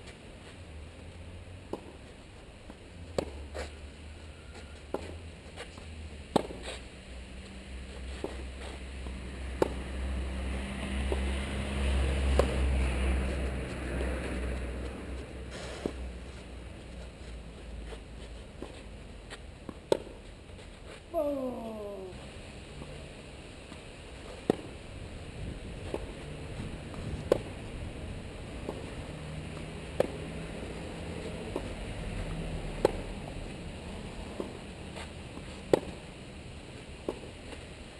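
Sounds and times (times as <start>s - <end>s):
racket hitting tennis ball: 1.7s - 2.0s, 3.1s - 3.7s, 6.3s - 6.8s, 8.0s - 22.1s, 24.2s - 24.8s, 25.7s - 27.7s, 28.5s - 31.9s, 32.8s - 33.1s, 34.3s - 36.1s, 37.0s - 37.6s
tennis racket strikes: 6.3s - 6.7s, 12.2s - 13.4s
faint distant racket hits: 12.1s - 16.1s
wind rumble on microphone: 25.0s - 28.6s.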